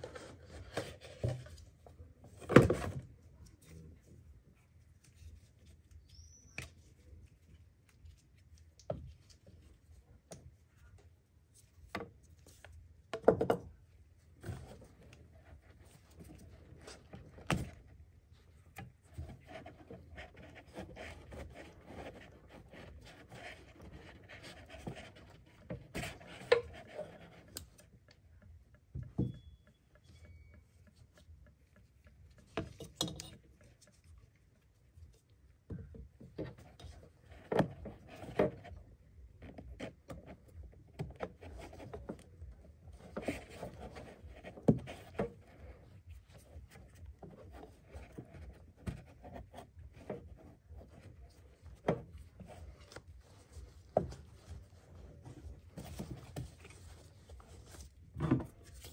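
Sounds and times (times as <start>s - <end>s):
rubbing and rustling: 13.9s - 28.3s, 30.7s - 58.9s.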